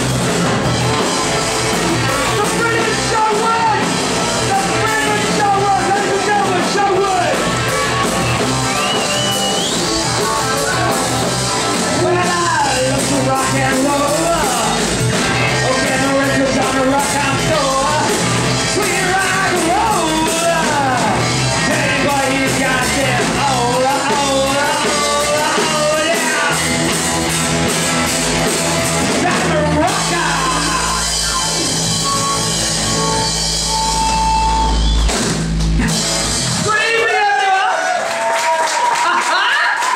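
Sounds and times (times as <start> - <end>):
electric guitar: 0.0 - 36.7
bass guitar: 0.0 - 37.3
drums: 0.0 - 39.9
man singing into a microphone: 12.0 - 14.8, 15.6 - 26.7, 29.1 - 31.2.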